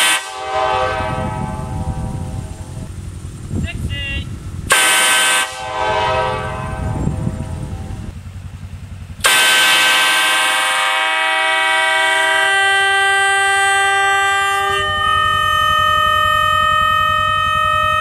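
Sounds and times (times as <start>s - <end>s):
locomotive air horn chord: 0.0s - 2.8s, 4.7s - 8.1s, 9.2s - 18.0s.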